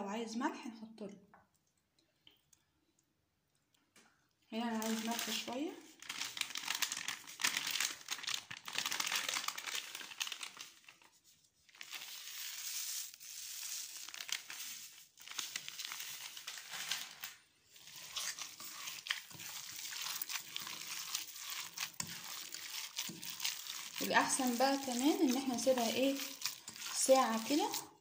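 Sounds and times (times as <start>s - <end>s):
hand kneading raw minced meat: 17.7s - 28.0s.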